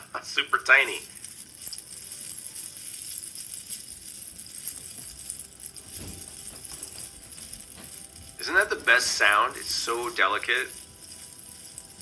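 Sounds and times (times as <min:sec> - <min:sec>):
seed-pod rattles shaken: 0:00.0 - 0:12.0.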